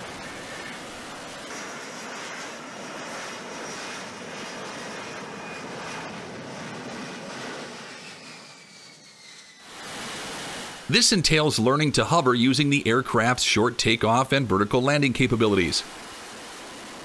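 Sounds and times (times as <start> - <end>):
jet hovering: 0.0 - 17.0
high whines falling in pitch: 7.8 - 10.0.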